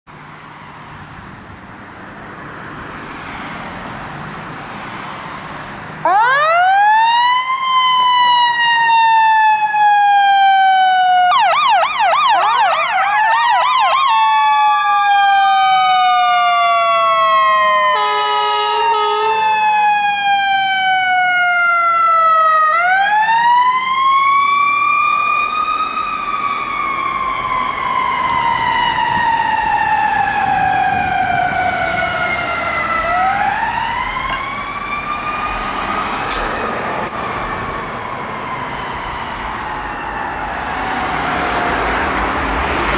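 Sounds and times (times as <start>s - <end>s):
passing car traffic: 0.1s - 42.9s
emergency sirens wailing and yelping: 5.9s - 42.9s
horn blast: 18.0s - 19.5s.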